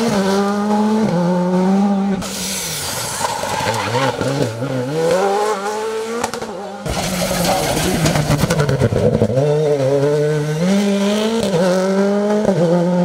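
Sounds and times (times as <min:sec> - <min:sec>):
rally car engine accelerating: 0:00.0 - 0:13.0.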